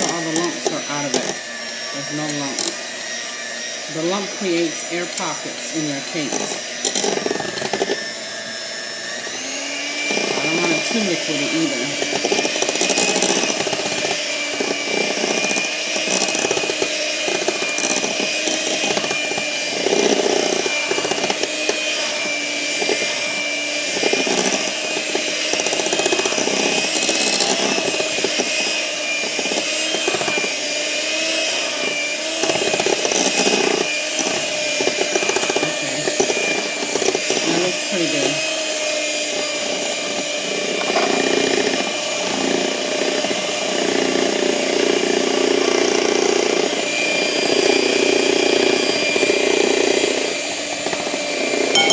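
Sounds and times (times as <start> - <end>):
electric hand mixer whining: 0.0 - 51.9.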